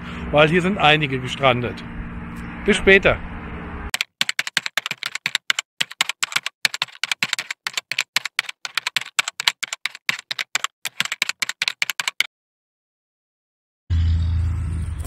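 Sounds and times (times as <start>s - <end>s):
keyboard typing clicks: 3.9s - 12.3s.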